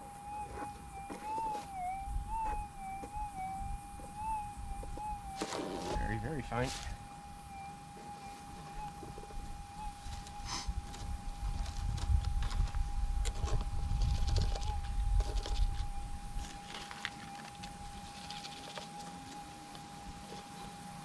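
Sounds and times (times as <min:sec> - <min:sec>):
metal detector threshold hum: 0:00.0 - 0:21.0.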